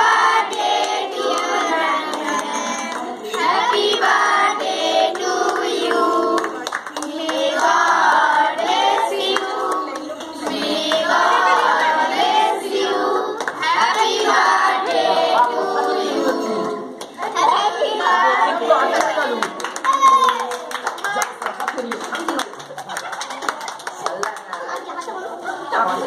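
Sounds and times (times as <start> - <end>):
children singing: 0.0 - 18.9
children clapping hands: 5.2 - 11.8, 13.4 - 14.4, 18.9 - 25.3.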